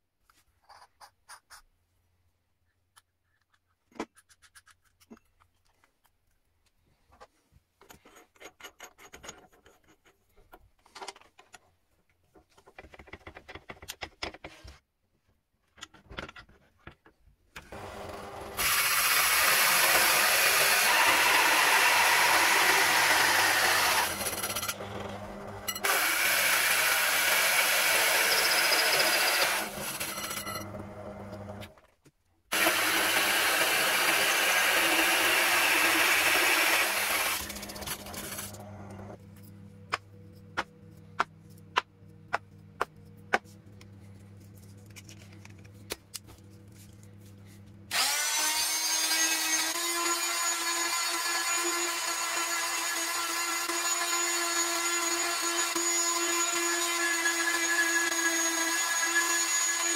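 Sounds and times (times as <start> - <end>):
drill press cutting wood: 17.6 - 31.7, 32.5 - 39.2, 47.9 - 59.9.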